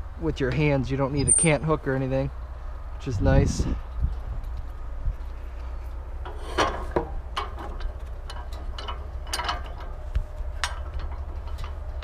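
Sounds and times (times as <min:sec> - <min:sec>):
steady low hum: 0:00.0 - 0:12.0
metal clicks: 0:06.2 - 0:12.0.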